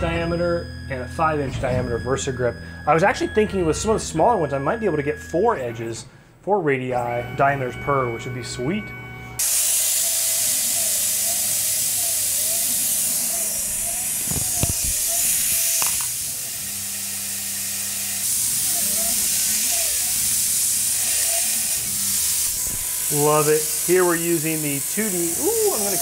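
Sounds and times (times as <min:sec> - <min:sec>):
cnc mill whine: 0:09.4 - 0:26.0
hiss of mist coolant: 0:09.4 - 0:26.0.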